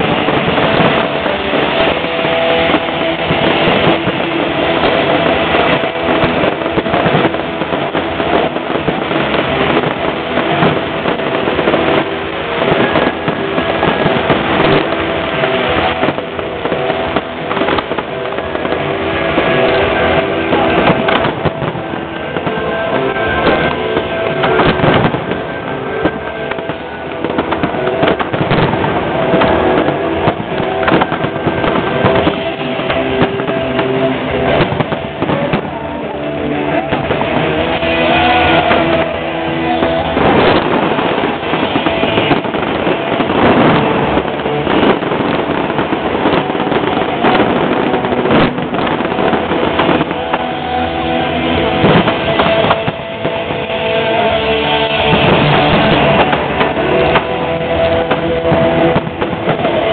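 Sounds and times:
music playing: 0.0s - 59.9s
firework shells bursting: 36.6s - 59.9s.

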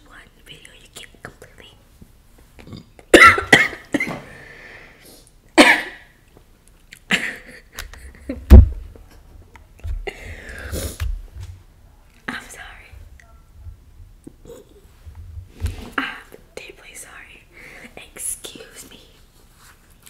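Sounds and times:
girl coughing: 3.1s - 4.3s, 5.6s - 6.1s.

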